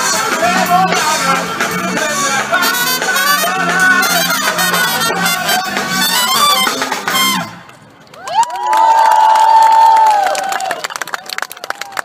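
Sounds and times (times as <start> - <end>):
high voices shouting: 0.0 - 7.5
crowd cheering: 0.0 - 12.0.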